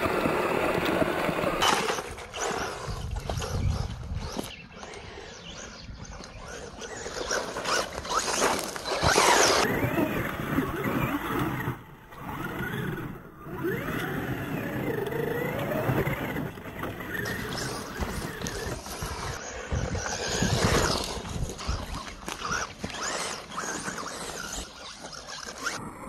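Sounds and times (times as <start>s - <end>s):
tyres scrabbling on gravel: 0.0s - 3.5s, 6.5s - 25.8s
electric motor whining: 0.0s - 4.6s, 6.1s - 26.0s.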